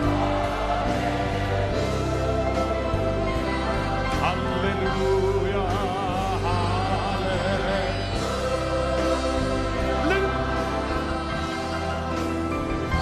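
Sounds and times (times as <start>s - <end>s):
person singing: 3.5s - 11.7s.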